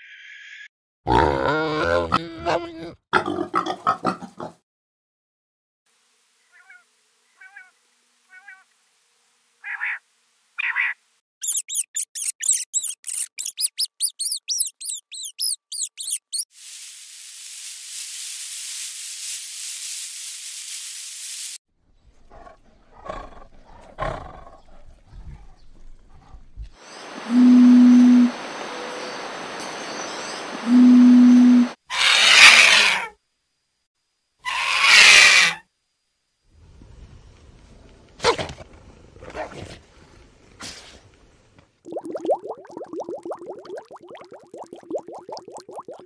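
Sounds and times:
short chirping calls: 10.6s - 16.5s
rats squeaking: 11.4s - 16.5s
steady hiss: 16.5s - 21.6s
tiger growling: 22.2s - 26.7s.

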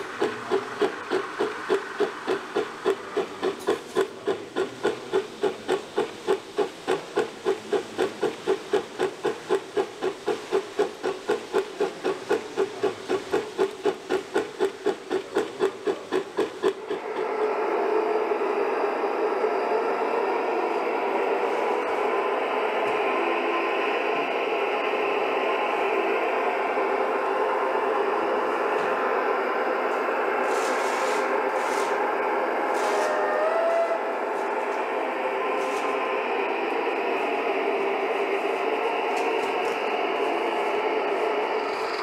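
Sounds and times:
steady rushing noise: 0.0s - 17.6s
model steam locomotive chuffing: 0.0s - 42.0s.

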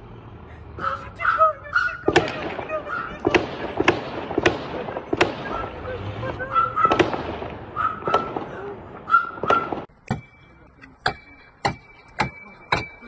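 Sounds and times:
raised voices: 0.6s - 9.8s
distant gunfire bangs: 2.0s - 10.4s
steady high beep: 10.1s - 13.0s.

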